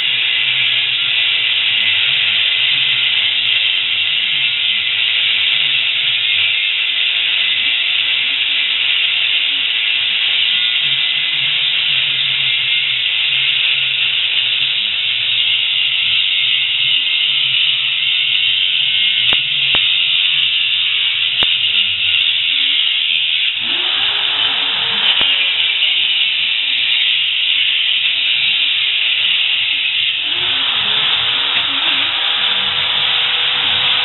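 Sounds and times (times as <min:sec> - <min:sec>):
angle grinder cutting metal: 0:00.0 - 0:34.0
sharp clicks: 0:19.2 - 0:22.0.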